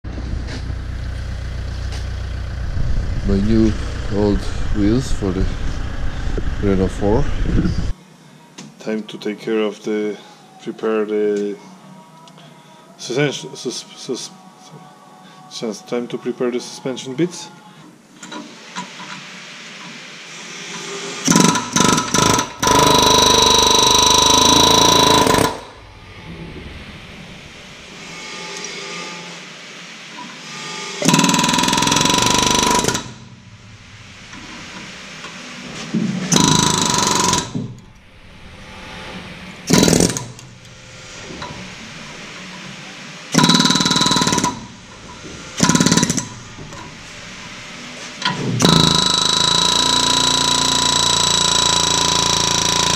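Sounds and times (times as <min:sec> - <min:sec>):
pneumatic air hammer on steel: 0:20.6 - 0:25.8, 0:30.2 - 0:33.3, 0:34.3 - 0:37.8, 0:39.7 - 0:41.7, 0:43.3 - 0:47.0, 0:48.2 - 0:52.9.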